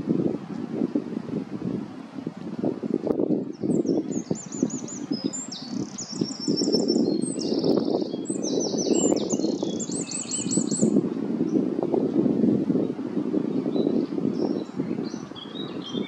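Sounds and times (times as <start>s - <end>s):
songbird singing trills: 3.5s - 11.6s, 13.5s - 16.0s.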